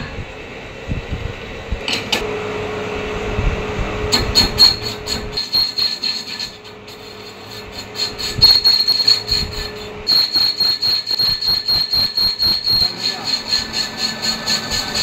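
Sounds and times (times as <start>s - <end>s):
metal lathe cutting squeal: 4.1s - 15.0s.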